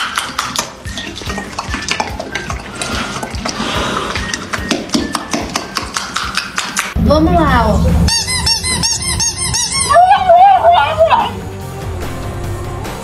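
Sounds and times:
horse smacking its lips: 0.0 - 7.0.

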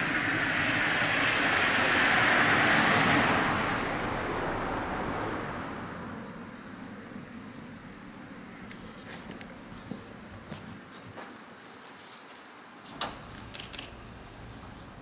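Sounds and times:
passing vehicle: 0.0 - 9.0.

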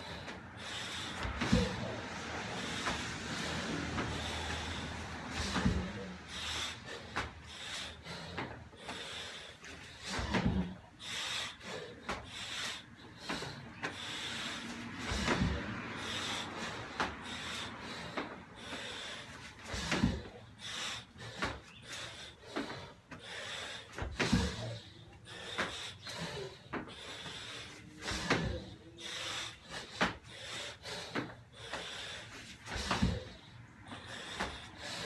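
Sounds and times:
hard noisy breathing: 0.0 - 35.0
heavy thuds on rubber floor: 5.4 - 6.1, 10.0 - 10.8, 15.1 - 15.8, 19.7 - 20.4, 24.0 - 24.8, 32.7 - 33.4.

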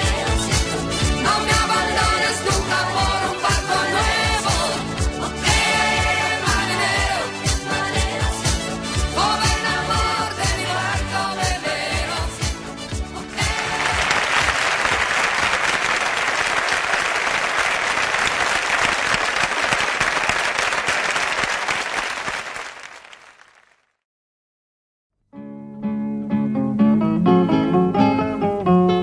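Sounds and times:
song: 0.0 - 15.0
audience applauding: 13.3 - 23.9.

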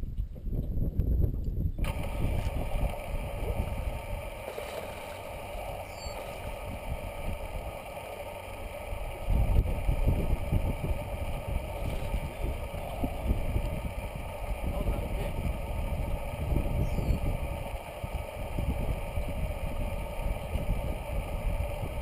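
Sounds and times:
wind buffeting microphone: 0.0 - 22.0
electric motor hum: 1.8 - 22.0.

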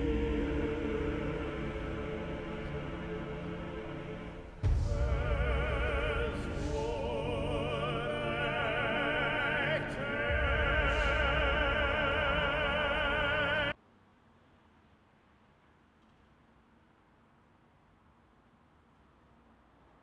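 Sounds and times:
orchestral music: 0.0 - 13.7
operatic voice singing: 0.0 - 13.8.

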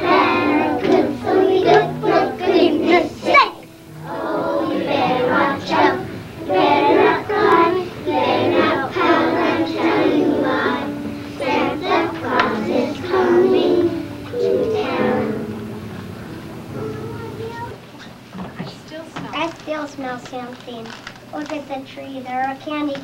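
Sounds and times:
children's choir singing: 0.0 - 17.7.

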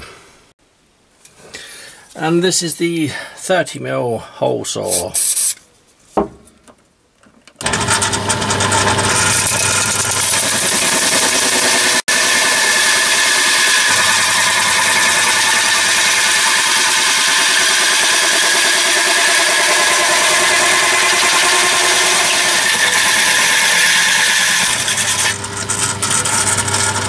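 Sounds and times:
bench drill running: 7.6 - 27.0
hole saw cutting steel sheet: 7.6 - 27.0.

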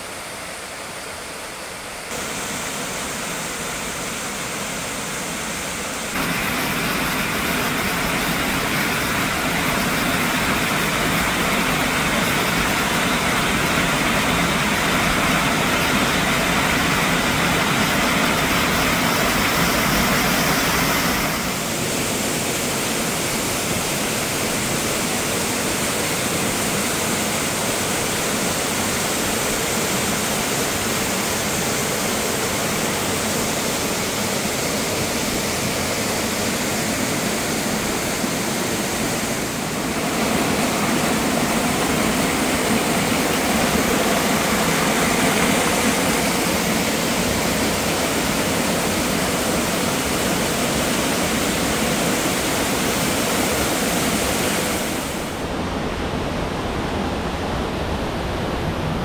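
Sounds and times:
waterfall rushing: 1.3 - 59.0.

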